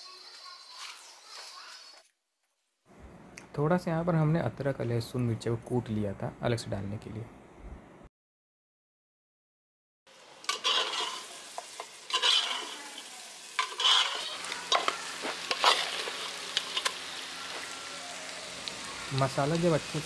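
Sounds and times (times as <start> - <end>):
meat sizzling in oil: 10.1 - 20.0
spoon scraping a pot: 10.5 - 11.3, 12.1 - 12.8, 13.6 - 14.9.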